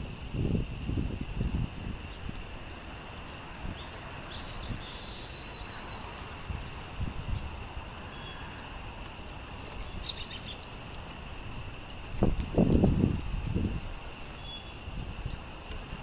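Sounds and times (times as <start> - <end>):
small songbirds chirping: 0.0 - 16.0.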